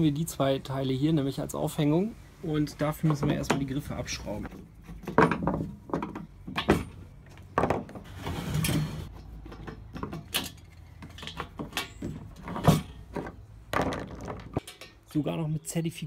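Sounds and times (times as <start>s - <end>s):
scraping on metal: 8.0s - 13.3s.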